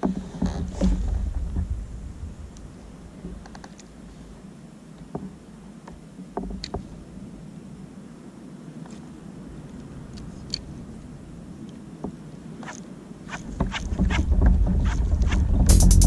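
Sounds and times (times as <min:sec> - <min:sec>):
water lapping against a kayak: 0:00.0 - 0:15.7
low rumble: 0:13.9 - 0:16.0.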